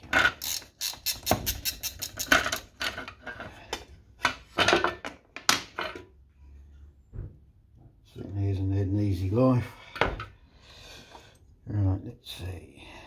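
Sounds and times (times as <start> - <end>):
small metallic clicks and clinks: 0.2 - 3.0.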